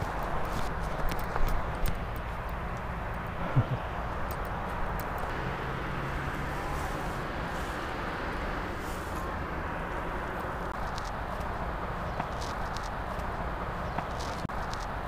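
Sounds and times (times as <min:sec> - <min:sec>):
grass rustling: 0:00.0 - 0:15.0
outdoor background noise: 0:00.0 - 0:15.0.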